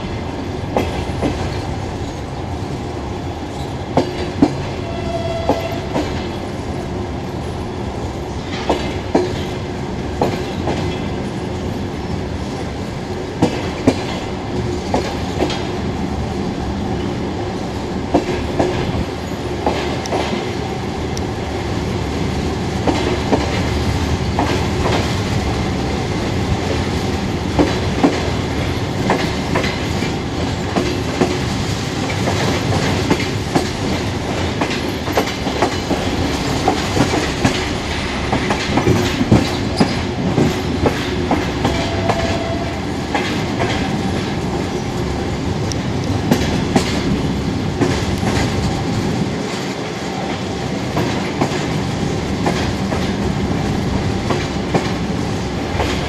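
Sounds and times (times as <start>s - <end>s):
train carriage rumbling: 0.0s - 56.0s
wheels clacking over rail joints: 8.3s - 15.8s, 26.5s - 56.0s.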